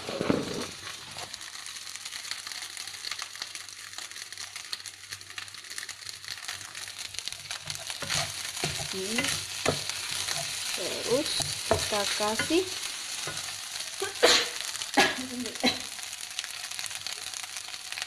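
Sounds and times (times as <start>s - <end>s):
wooden spatula scraping: 0.0s - 1.4s, 6.7s - 13.9s
rice sizzling in wok: 0.0s - 18.0s
small crackles: 0.0s - 18.0s.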